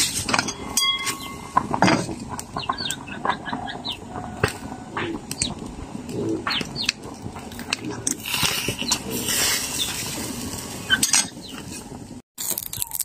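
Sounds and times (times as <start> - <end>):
small birds chirping: 2.5 - 4.1, 6.2 - 7.1, 10.8 - 11.6
chickens clucking: 2.5 - 8.1.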